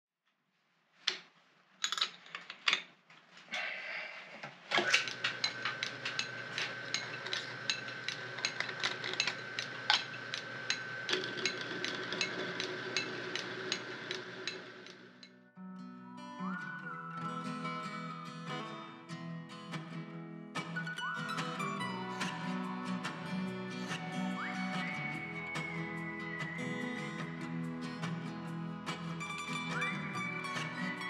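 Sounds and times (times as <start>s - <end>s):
drive belt clicking: 4.8s - 15.3s
metal lathe whining: 4.8s - 15.3s, 22.0s - 31.0s.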